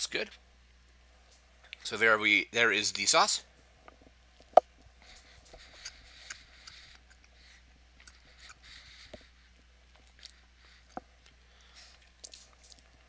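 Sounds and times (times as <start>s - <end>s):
faint chewing: 3.8s - 13.0s.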